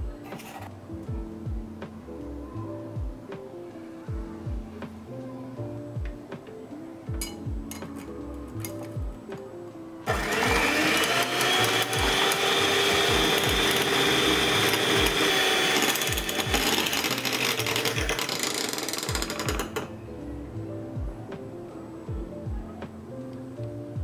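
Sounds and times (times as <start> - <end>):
electric hand mixer whine: 10.1 - 19.8.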